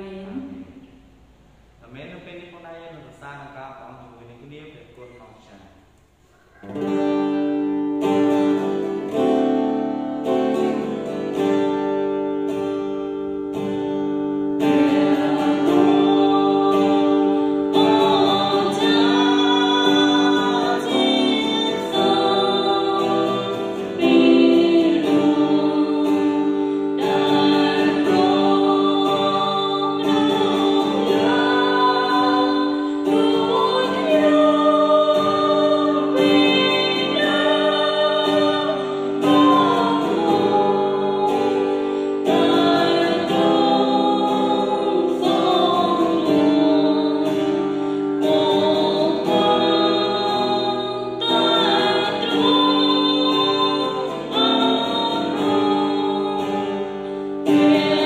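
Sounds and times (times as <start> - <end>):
woman singing into microphone: 14.6 - 58.0.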